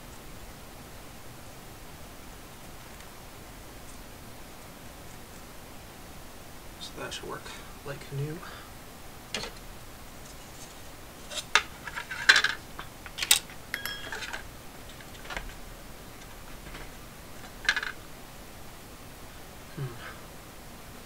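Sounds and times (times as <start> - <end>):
ringing clink: 13.7 - 14.4.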